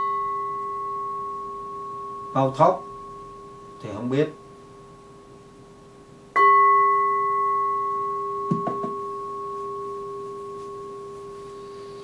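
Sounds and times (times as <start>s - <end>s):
bowl bell ringing: 0.0s - 5.2s, 6.3s - 12.0s
soft knock: 8.5s - 9.0s.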